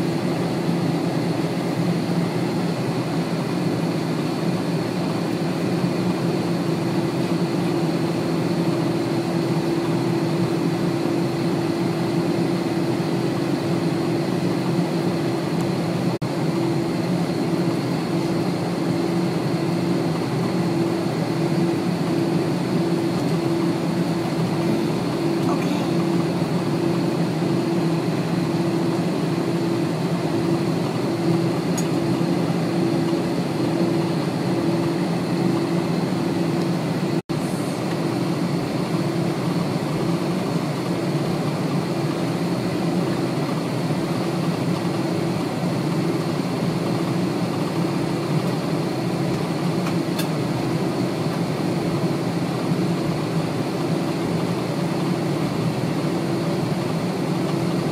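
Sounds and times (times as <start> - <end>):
jet engines droning: 0.0 - 57.9.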